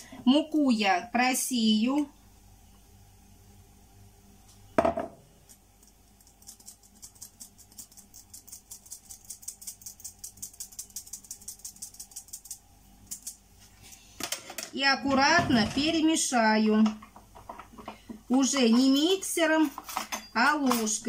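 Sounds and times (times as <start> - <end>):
mug set down on countertop: 4.8 - 5.2.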